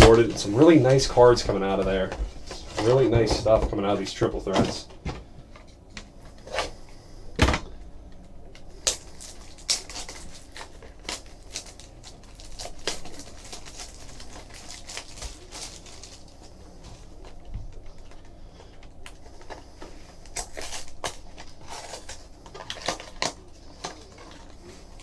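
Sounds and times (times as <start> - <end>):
plastic shrink-wrap crinkling: 8.5 - 25.0.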